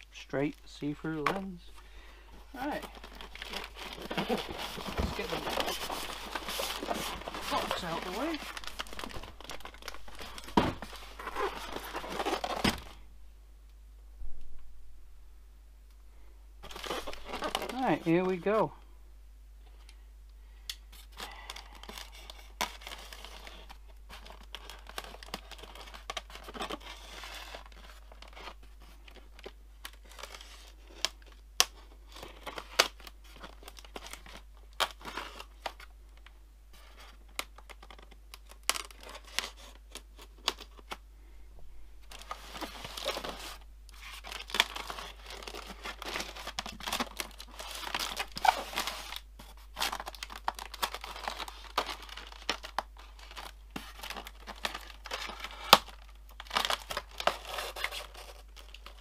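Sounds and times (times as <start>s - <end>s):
polystyrene foam rubbing and tearing: 2.6s - 12.6s, 47.3s - 51.8s.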